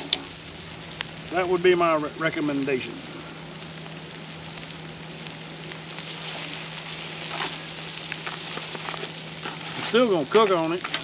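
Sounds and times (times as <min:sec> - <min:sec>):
steak sizzling on a grill: 0:00.0 - 0:11.0
metal tongs rustling in foil: 0:06.0 - 0:11.0.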